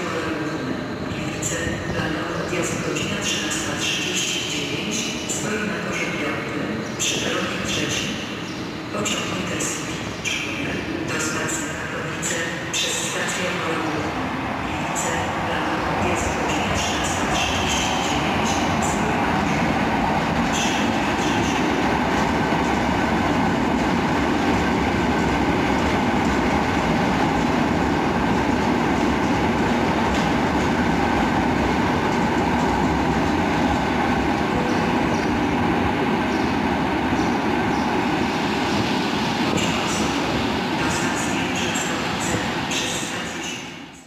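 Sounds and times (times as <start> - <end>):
train wheels rumbling on rails: 9.0 - 43.4.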